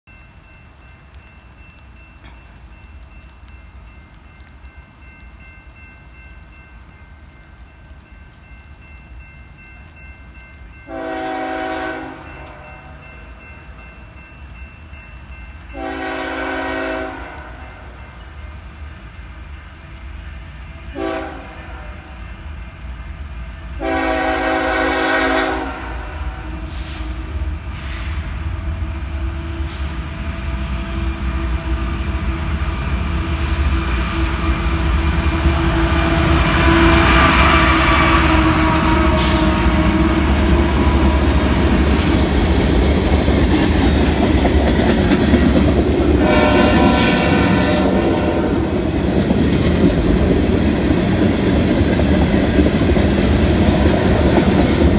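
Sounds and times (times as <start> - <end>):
locomotive air horn blasts: 10.9 - 13.0, 15.7 - 18.0, 20.9 - 22.2, 23.8 - 28.2, 36.4 - 41.0, 46.2 - 48.7
train wheels clattering: 33.8 - 54.9.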